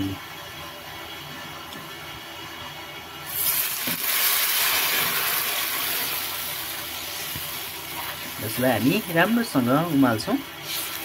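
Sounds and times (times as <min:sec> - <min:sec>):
loud hissing sizzle: 0:03.1 - 0:11.0.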